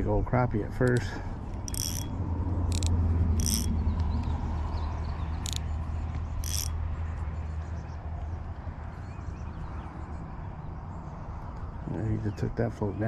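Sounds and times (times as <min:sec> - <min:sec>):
fishing reel clicking: 0:01.6 - 0:03.7, 0:05.4 - 0:05.7, 0:06.4 - 0:06.8.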